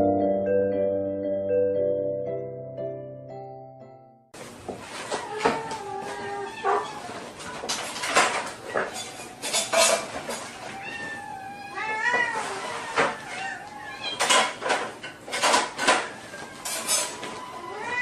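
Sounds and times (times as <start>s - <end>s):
dishes clinking: 5.0s - 11.2s, 12.0s - 17.4s
kittens meowing: 5.2s - 7.4s, 10.5s - 14.5s, 15.9s - 18.0s.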